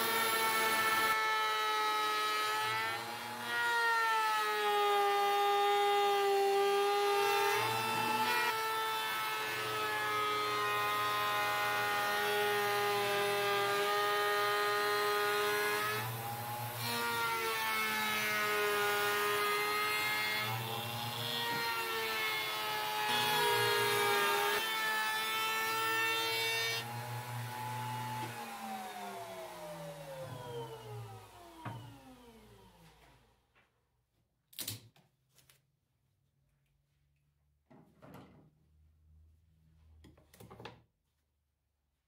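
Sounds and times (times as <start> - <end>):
wood router whining: 0.0 - 33.3.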